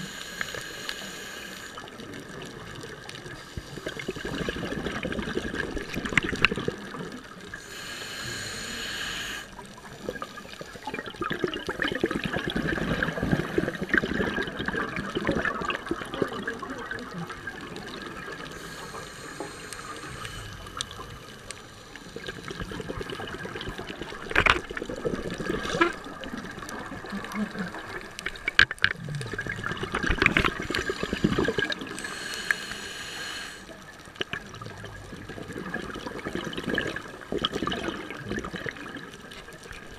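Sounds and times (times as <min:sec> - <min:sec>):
regulator breathing: 0:00.0 - 0:01.9, 0:07.5 - 0:10.9, 0:18.3 - 0:22.9, 0:30.3 - 0:33.9
bubbles gurgling: 0:01.8 - 0:07.6, 0:09.6 - 0:32.2, 0:33.8 - 0:39.9.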